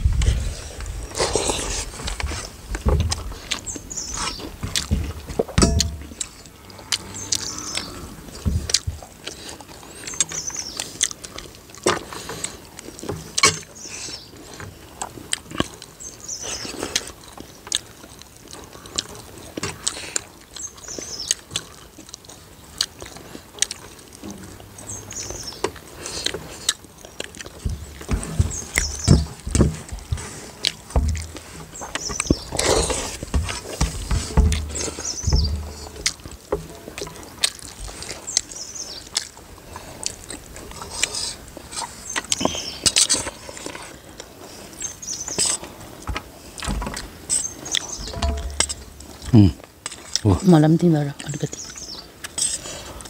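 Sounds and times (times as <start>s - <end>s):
mouths chewing: 0.1s - 53.0s
fingers scooping rice on steel plates: 25.6s - 38.5s, 45.3s - 50.2s.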